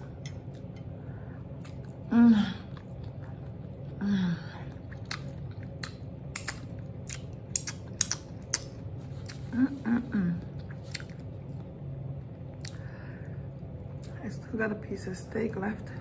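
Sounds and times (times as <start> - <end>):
closed-mouth hum: 0.0 - 16.0
person chewing food: 0.1 - 9.6, 10.4 - 12.9
wet mouth clicks and smacks: 4.9 - 9.4.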